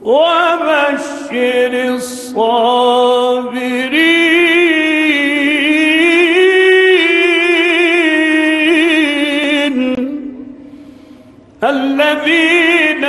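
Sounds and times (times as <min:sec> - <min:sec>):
man reciting melodically: 0:00.0 - 0:10.8, 0:11.5 - 0:13.0
quick breath: 0:10.6 - 0:11.6.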